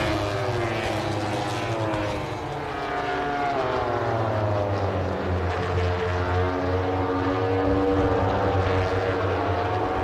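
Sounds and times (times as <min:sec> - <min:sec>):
racing motorcycles at high revs: 0:00.0 - 0:02.4.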